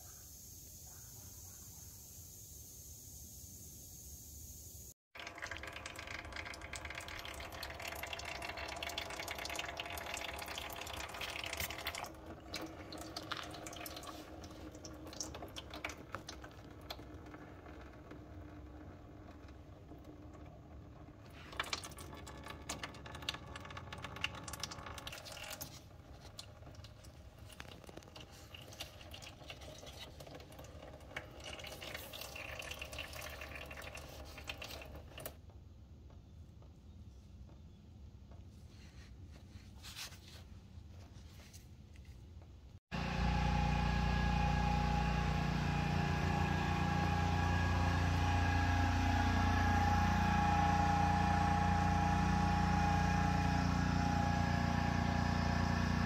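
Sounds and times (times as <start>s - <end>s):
oil trickling and dripping: 5.2s - 35.4s, 42.9s - 56.0s.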